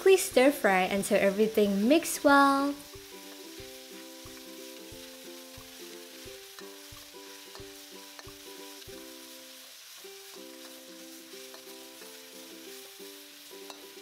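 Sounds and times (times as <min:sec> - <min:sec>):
meat sizzling in a wok: 0:00.0 - 0:14.0
quiet background music: 0:00.0 - 0:14.0
metal spatula scraping wok: 0:10.2 - 0:14.0.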